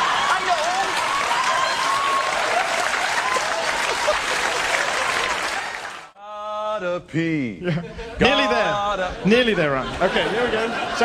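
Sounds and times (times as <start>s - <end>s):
audience applauding: 0.0s - 6.2s
audience laughing: 2.6s - 5.9s, 7.6s - 11.0s.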